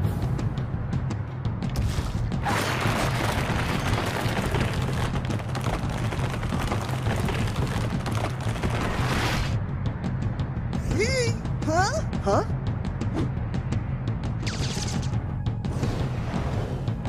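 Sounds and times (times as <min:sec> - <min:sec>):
rumbling crackling vines effect: 0:02.4 - 0:09.6.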